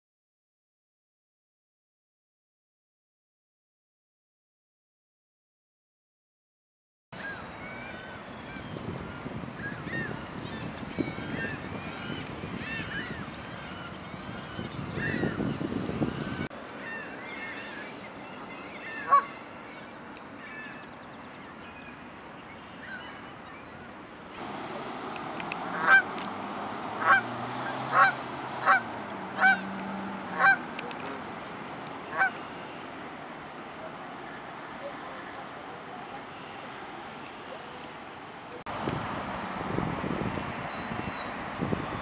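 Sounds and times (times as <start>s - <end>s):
geese honking: 18.8s - 19.3s, 25.0s - 26.3s, 26.9s - 31.3s, 32.1s - 32.4s.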